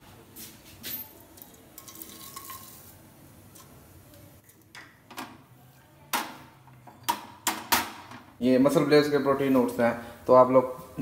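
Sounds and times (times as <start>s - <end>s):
dry oats poured into saucepan: 1.5s - 3.0s.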